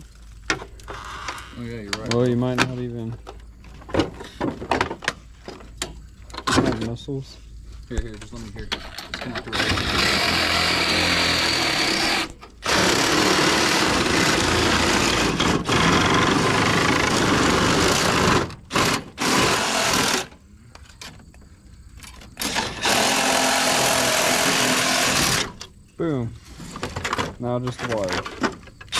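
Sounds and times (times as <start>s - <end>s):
cordless reciprocating saw cutting: 9.5s - 20.3s, 22.4s - 25.6s.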